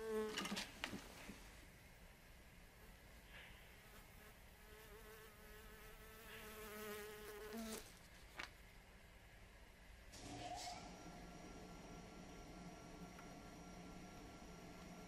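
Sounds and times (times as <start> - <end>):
housefly buzzing: 0.0 - 0.5, 3.9 - 7.9.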